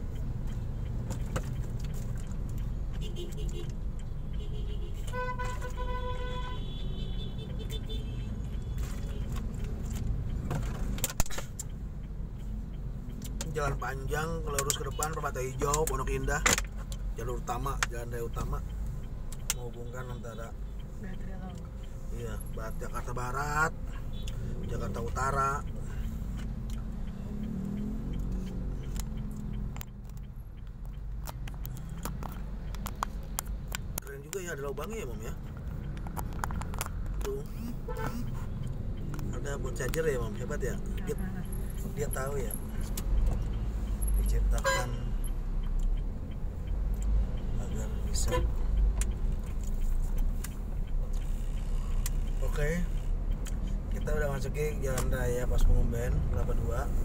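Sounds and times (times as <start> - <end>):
soft irregular clicks: 0.0 - 57.0
vehicle horn honking: 4.4 - 8.3, 44.6 - 45.0, 48.2 - 48.6
sharp click: 10.6 - 11.8.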